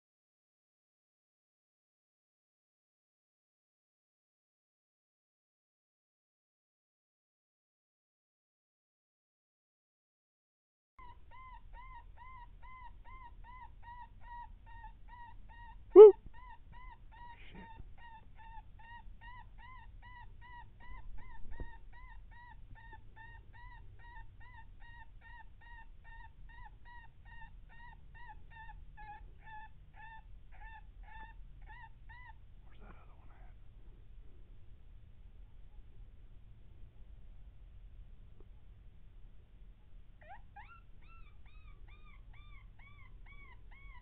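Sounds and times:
loud short yelp: 16.0 - 16.2.

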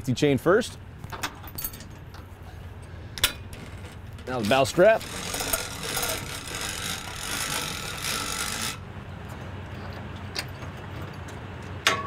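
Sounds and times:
winch strap rasping: 3.2 - 8.8.

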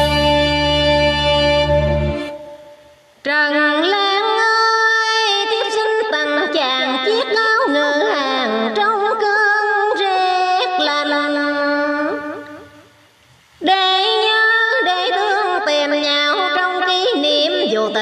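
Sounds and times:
instrumental melody with bending notes: 0.0 - 2.7.

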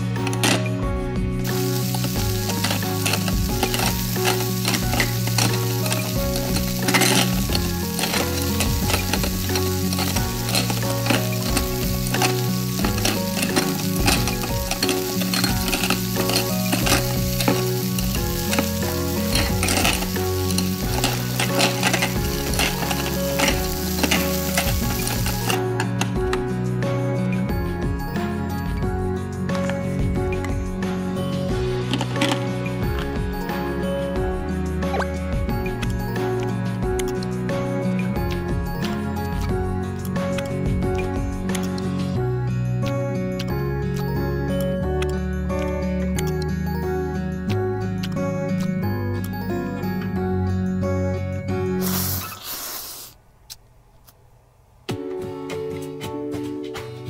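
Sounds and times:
frying pan sizzling: 1.4 - 25.7.

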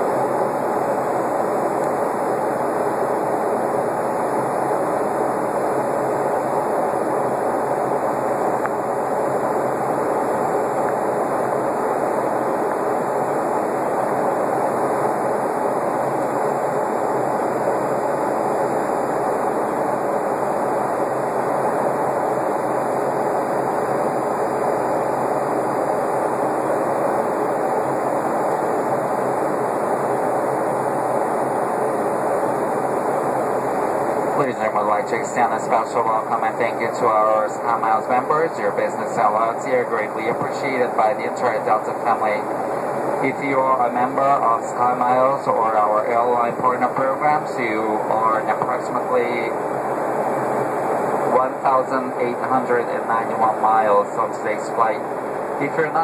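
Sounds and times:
jet cabin engine rush: 0.0 - 56.0.

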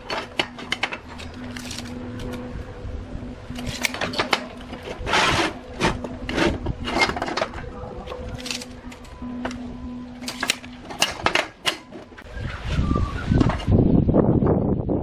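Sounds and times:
metal tubes clicking and knocking: 0.0 - 2.4, 10.2 - 12.1
metal tubes scraping: 0.0 - 12.3.

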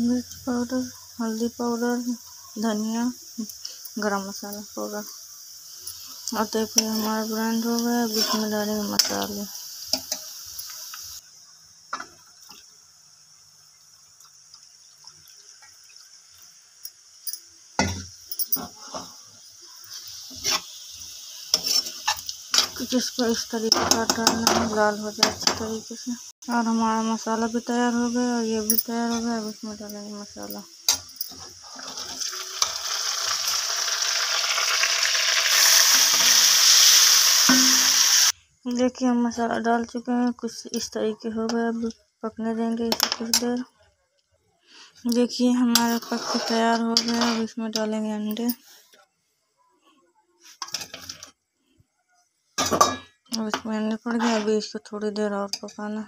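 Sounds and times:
spice paste sizzling in oil: 0.0 - 38.4, 44.7 - 48.9, 53.8 - 56.0.

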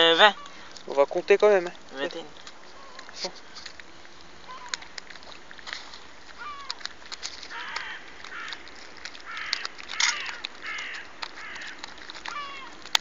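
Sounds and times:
birds cawing: 0.0 - 0.8, 2.6 - 3.2, 4.4 - 5.0, 6.4 - 6.8, 7.4 - 12.8
light clicks and rustles: 0.0 - 13.0.

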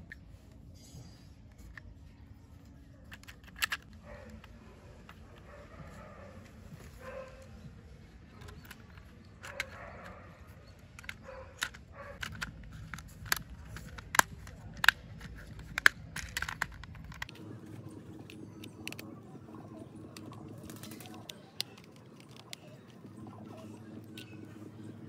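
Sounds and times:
plastic toy parts clicking: 3.1 - 5.4, 8.3 - 25.0.

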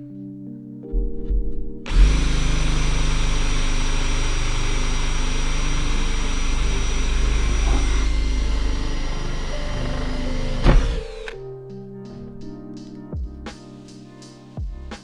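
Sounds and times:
cordless drill boring through board: 1.9 - 11.4.

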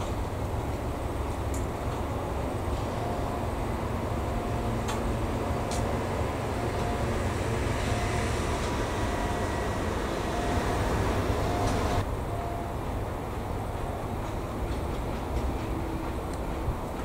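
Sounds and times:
diesel shunting engine running: 2.1 - 12.5
short beeps: 9.0 - 12.7.

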